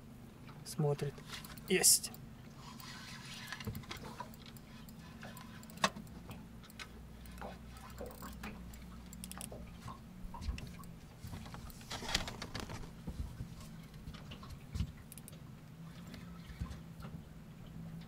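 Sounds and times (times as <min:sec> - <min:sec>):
low steady hum: 0:00.0 - 0:18.0
fishing reel clicking: 0:07.3 - 0:09.6.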